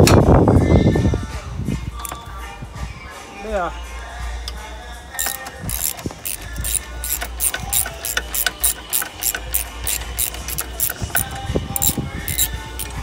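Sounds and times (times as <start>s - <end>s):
socket ratchet clicking: 2.0s - 2.3s, 4.5s - 13.0s.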